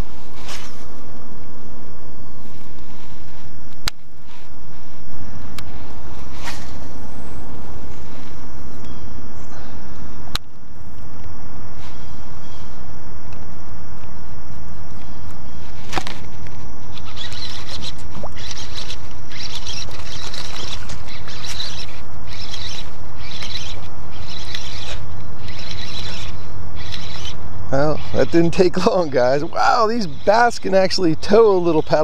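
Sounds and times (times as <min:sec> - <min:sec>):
fishing reel cranking: 0:16.9 - 0:28.9.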